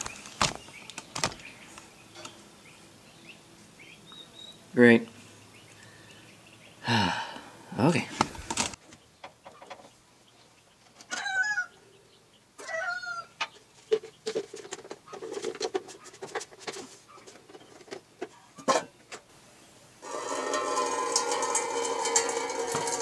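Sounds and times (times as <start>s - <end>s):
chicken clucking: 12.6s - 18.0s.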